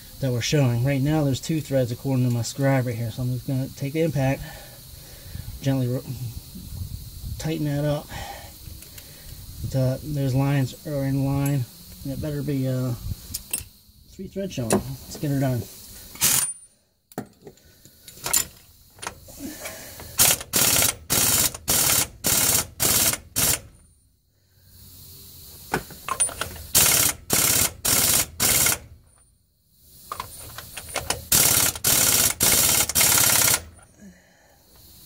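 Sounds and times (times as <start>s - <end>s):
impact wrench hammering: 31.1s - 33.7s.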